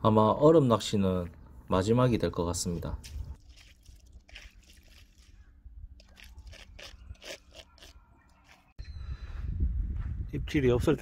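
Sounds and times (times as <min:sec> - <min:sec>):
crunching in snow and ice: 0:03.0 - 0:08.7.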